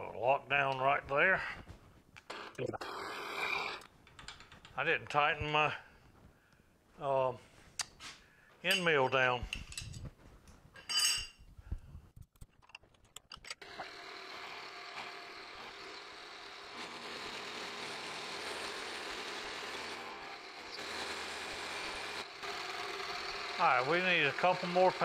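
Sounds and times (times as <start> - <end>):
end mill cutting metal: 13.6 - 25.0
milling machine spindle running: 13.6 - 25.0.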